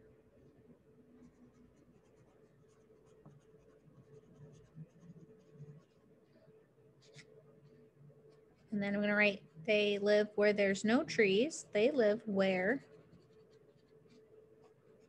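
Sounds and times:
pencil scratching on paper: 0:01.2 - 0:06.0, 0:12.4 - 0:15.0.

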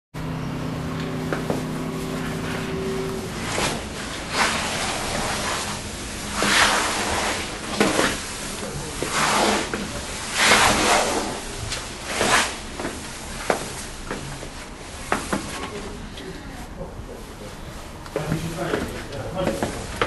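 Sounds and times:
footsteps scuffing on stone stairs: 0:18.2 - 0:20.0.

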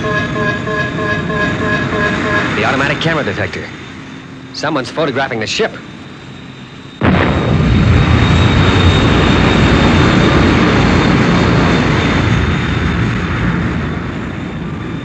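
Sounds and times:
jet engine roar: 0:00.0 - 0:15.0.

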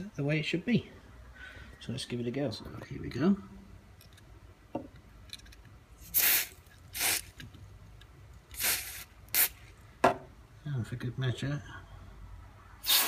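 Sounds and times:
aerosol spray hissing: 0:06.1 - 0:07.3, 0:08.5 - 0:09.6.

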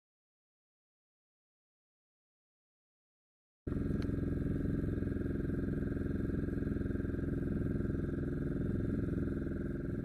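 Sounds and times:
boat engine running: 0:03.7 - 0:10.0.

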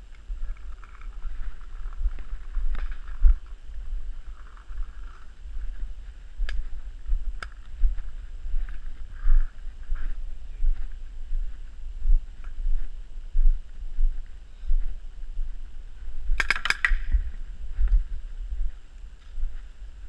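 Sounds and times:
walking movement: 0:00.0 - 0:20.0
wind rumble on microphone: 0:00.0 - 0:20.0
sharp clicks: 0:16.4 - 0:17.2.

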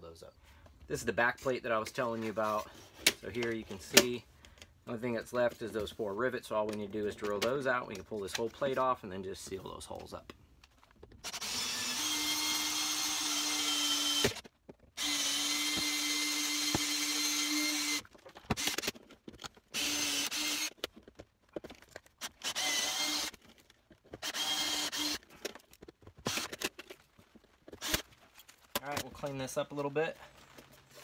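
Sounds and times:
cordless drill drilling metal: 0:11.2 - 0:18.9, 0:19.7 - 0:20.8, 0:22.2 - 0:23.4, 0:24.1 - 0:25.5, 0:26.2 - 0:26.7, 0:27.7 - 0:28.1.

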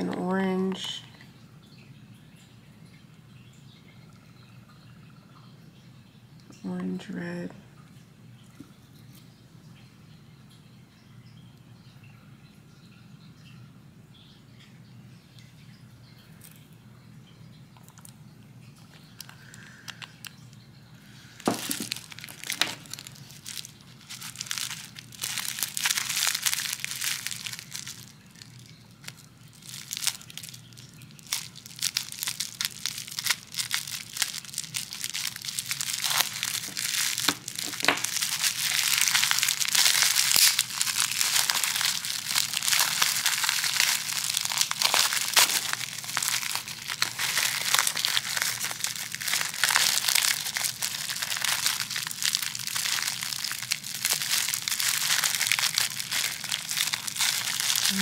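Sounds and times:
bubble wrap crinkling: 0:18.8 - 0:58.0.

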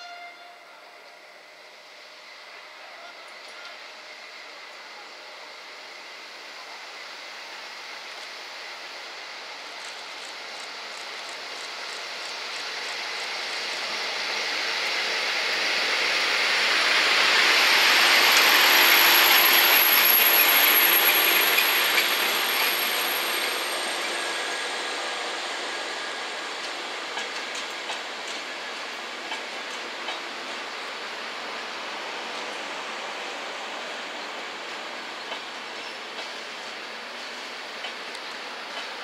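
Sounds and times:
passenger train rolling past: 0:00.0 - 0:39.0
thin high whine: 0:17.3 - 0:26.9.

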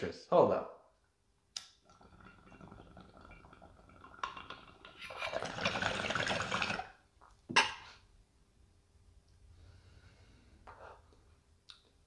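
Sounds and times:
water bubbling in a bong: 0:01.6 - 0:07.0.

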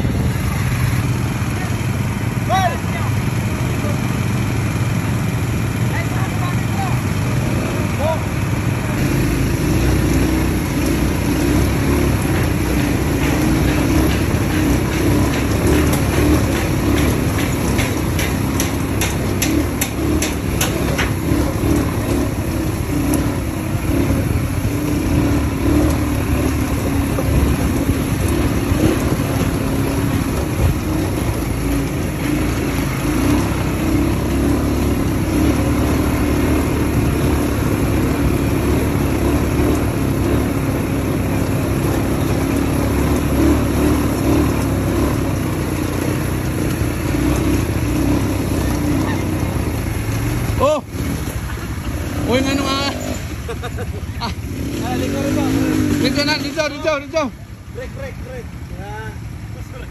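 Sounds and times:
atv engine running: 0:00.0 - 0:59.9
sharp ticks: 0:10.0 - 0:22.2.

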